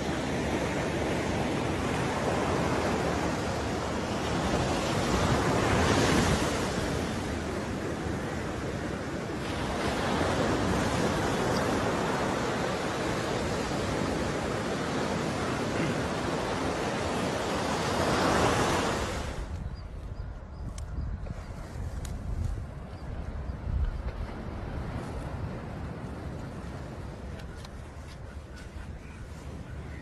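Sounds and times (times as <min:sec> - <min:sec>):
waves breaking on beach: 0:00.0 - 0:19.6
wind buffeting microphone: 0:00.0 - 0:30.0.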